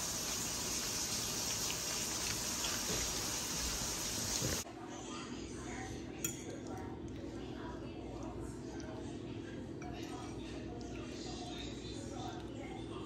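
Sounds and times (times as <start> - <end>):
water running from tap: 0.0 - 4.6.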